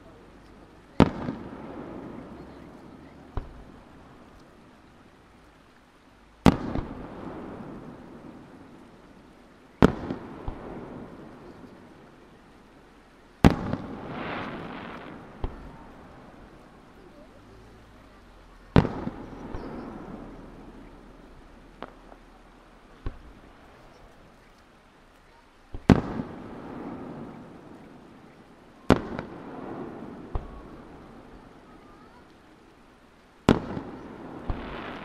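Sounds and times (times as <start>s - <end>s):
faint firework pops: 0.4s - 4.6s, 6.4s - 8.8s, 9.8s - 12.1s, 13.4s - 17.2s, 18.6s - 32.4s, 33.4s - 35.0s
firework booms with echo: 0.9s - 4.3s, 6.4s - 9.2s, 9.8s - 12.0s, 13.4s - 17.3s, 18.6s - 24.3s, 25.7s - 32.1s, 33.4s - 35.0s.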